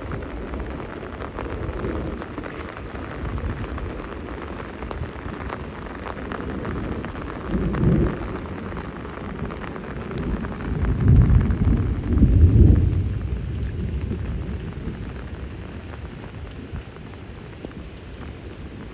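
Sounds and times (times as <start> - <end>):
steady rain: 0.0 - 18.9
low rumbling thunder surges: 6.5 - 15.6.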